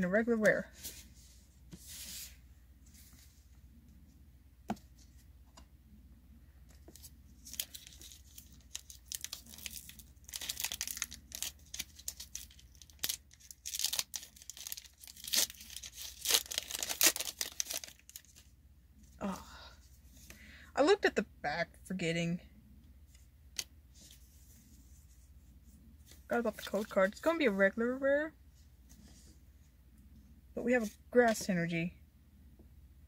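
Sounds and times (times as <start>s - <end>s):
foil wrapper crinkling and tearing: 7.4s - 18.5s.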